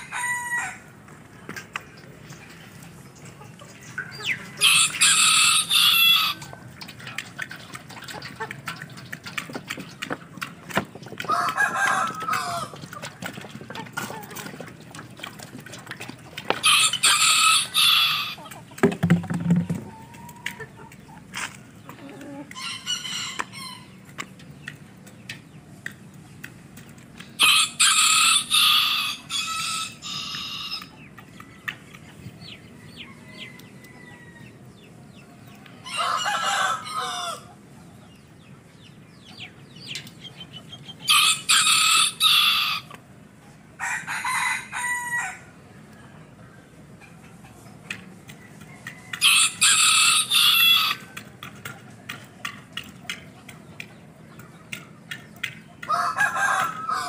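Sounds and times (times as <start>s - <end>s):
roosters crowing: 0.0s - 1.1s, 4.1s - 6.8s, 11.2s - 13.1s, 16.5s - 18.7s, 22.0s - 24.1s, 27.4s - 31.0s, 32.6s - 37.7s, 41.0s - 43.1s, 43.7s - 46.4s, 48.5s - 51.4s, 55.8s - 57.0s.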